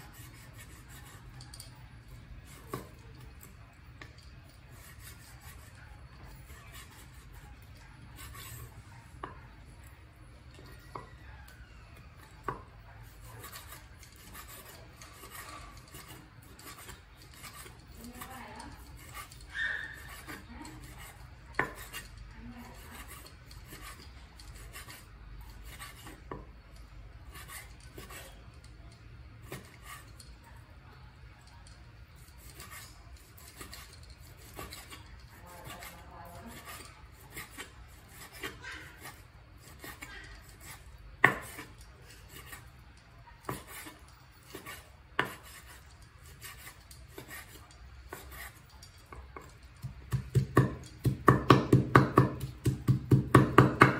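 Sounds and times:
knife slicing meat: 12.2 - 26.4, 27.2 - 30.3, 31.4 - 42.8, 43.4 - 53.9
knife tapping wooden board: 49.1 - 53.9.

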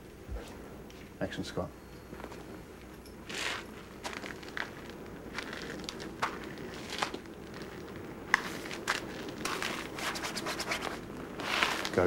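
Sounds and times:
footsteps walking: 3.2 - 12.0.

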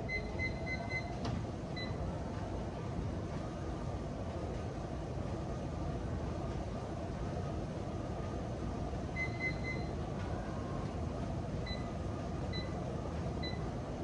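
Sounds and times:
exercise machine console beeps: 0.0 - 2.0, 9.1 - 10.0, 11.6 - 12.8, 13.4 - 13.8
steady background noise: 0.0 - 14.0.

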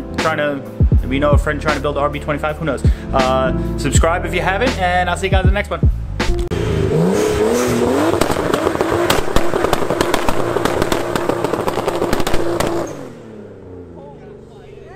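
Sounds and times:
exhaust popping: 0.9 - 14.9
car engine revving: 5.9 - 14.9
tires spinning on pavement: 6.5 - 14.9.

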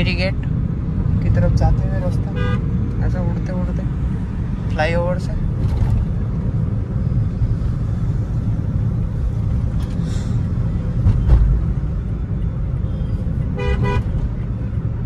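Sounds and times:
car cabin road and engine rumble: 0.0 - 15.0.

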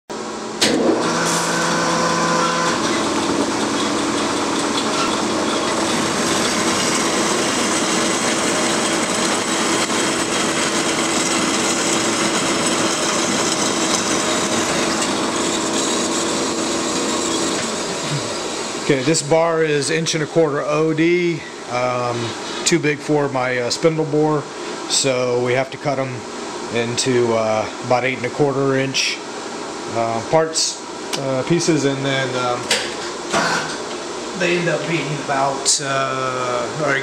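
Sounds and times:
bandsaw cutting steel bar: 0.6 - 18.9.

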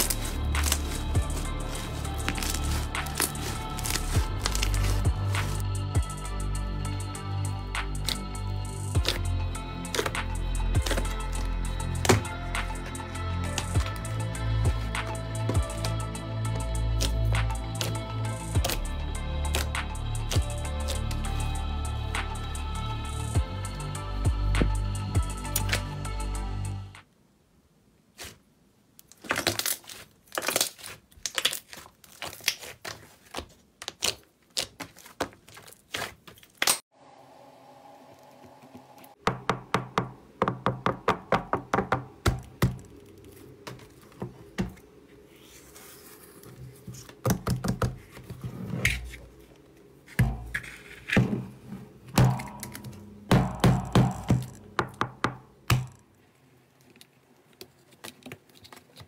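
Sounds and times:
soft background music: 0.0 - 27.1.

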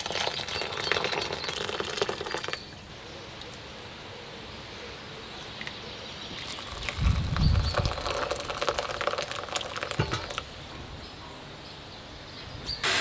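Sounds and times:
water pouring into a bowl: 0.0 - 2.6, 6.4 - 10.5.

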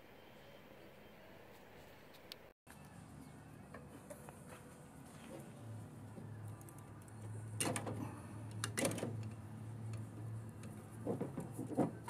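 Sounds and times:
metal rattling and scraping: 10.1 - 12.0.

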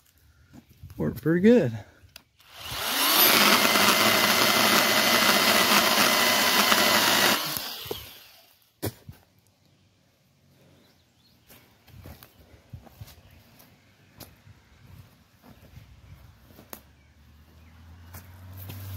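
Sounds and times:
electric chainsaw running: 2.4 - 8.6.

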